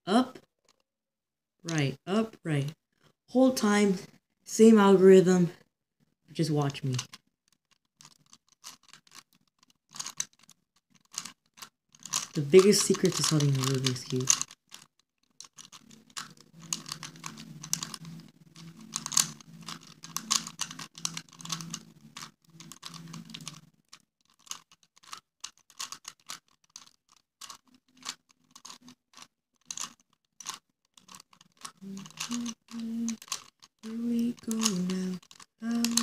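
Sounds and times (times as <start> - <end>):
plastic puzzle cube clacking: 6.7 - 36.0
low steady hum: 15.8 - 23.8, 31.7 - 36.0.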